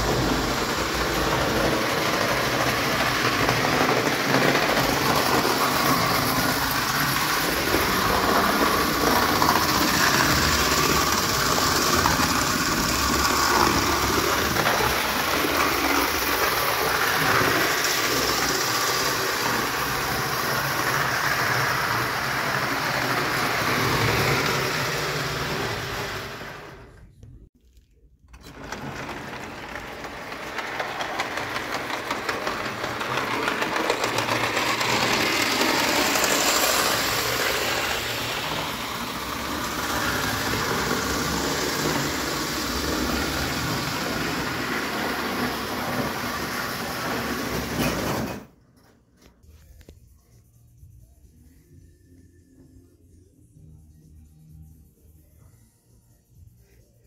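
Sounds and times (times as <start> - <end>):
toy train whirring and rattling: 0.0 - 27.0, 28.3 - 48.9.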